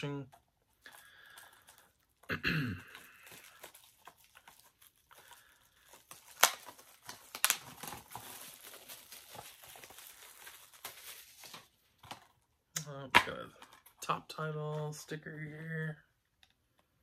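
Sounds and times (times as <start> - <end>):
plastic wrapping crinkling: 0.0 - 12.5.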